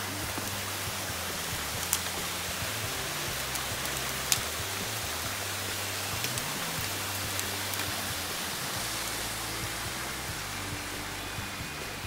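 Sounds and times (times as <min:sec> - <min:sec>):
campfire popping: 0:00.0 - 0:12.0
mountain stream rushing: 0:00.0 - 0:12.0.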